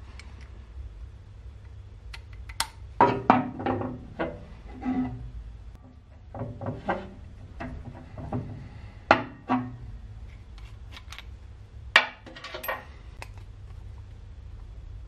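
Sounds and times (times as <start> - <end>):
metal parts knocking and clinking: 12.0 - 13.0.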